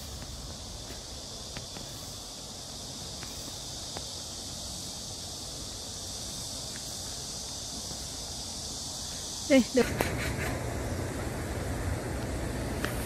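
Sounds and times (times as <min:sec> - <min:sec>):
cicadas chorus: 0:00.0 - 0:13.0
faint ticks: 0:03.1 - 0:04.2.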